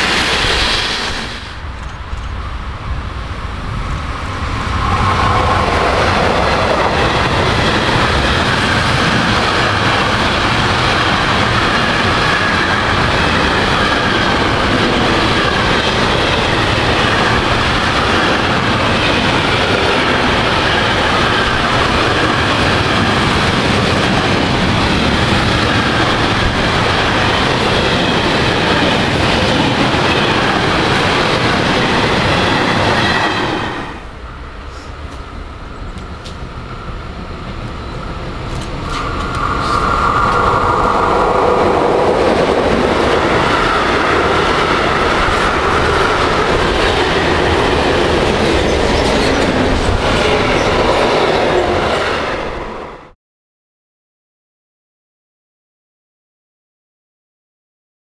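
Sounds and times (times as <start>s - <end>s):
freight train passing: 0.0s - 53.2s
wheels clickety-clack on rails: 4.5s - 33.5s, 34.7s - 36.6s, 37.4s - 52.6s.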